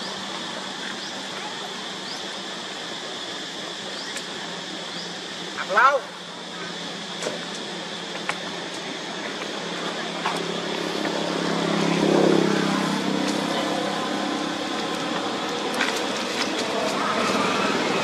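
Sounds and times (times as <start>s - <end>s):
motor vehicle engine hum: 0.0s - 18.0s
steady high hiss: 0.0s - 18.0s.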